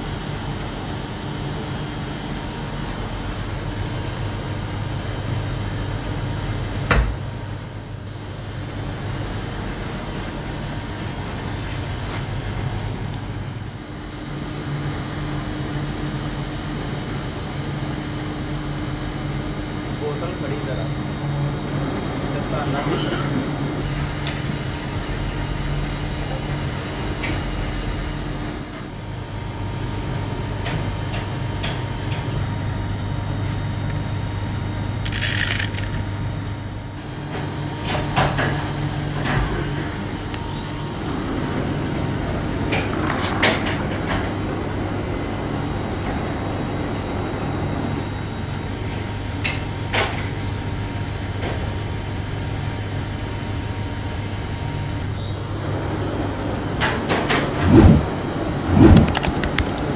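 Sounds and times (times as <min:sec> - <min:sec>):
machinery humming: 0:31.4 - 0:49.4, 0:53.5 - 0:59.9
granules scooped into plastic tub: 0:35.1 - 0:36.0, 0:58.8 - 0:59.9.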